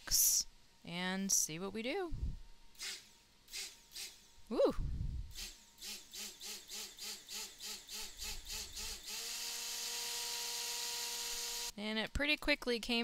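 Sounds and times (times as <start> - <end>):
stick blender whirring: 5.4 - 11.8.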